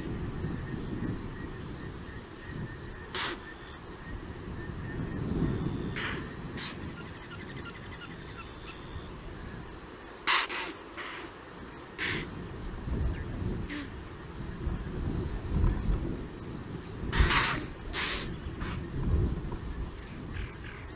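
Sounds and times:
impala alarm barks: 0:10.2 - 0:11.3.

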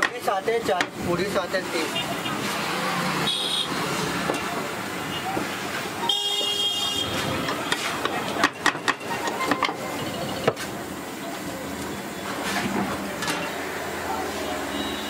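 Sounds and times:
street noise hiss: 0:00.0 - 0:15.0.

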